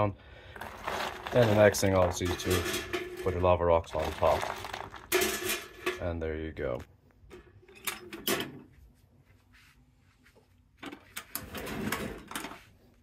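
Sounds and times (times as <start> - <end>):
scraping and knocking on metal: 0.6 - 6.1.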